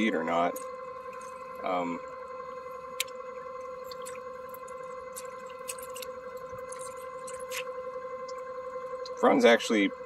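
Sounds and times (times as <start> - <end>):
steady hum: 0.0 - 10.0
water dripping: 3.8 - 8.4.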